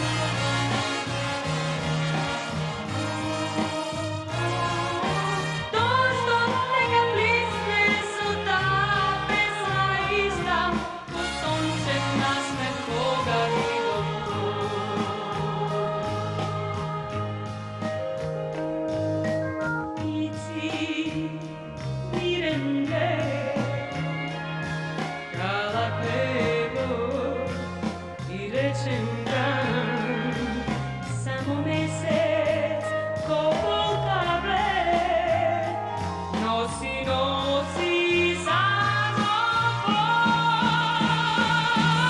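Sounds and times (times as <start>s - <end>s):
band with bass and beat: 0.0s - 42.0s
woman singing with vibrato: 4.3s - 17.3s, 19.9s - 21.4s, 22.2s - 23.8s, 28.3s - 42.0s.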